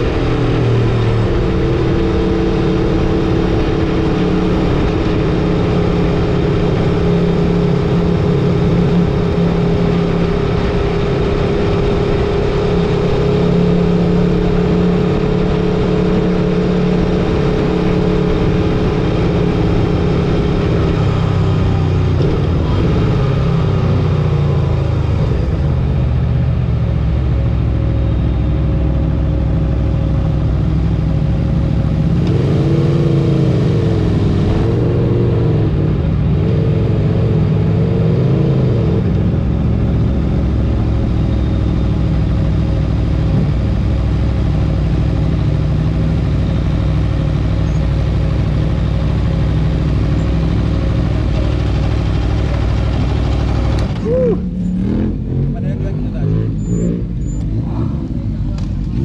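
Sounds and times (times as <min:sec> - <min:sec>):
motorcycle engine running: 0:00.0 - 0:38.1, 0:38.8 - 0:59.0
road noise: 0:00.0 - 0:59.0.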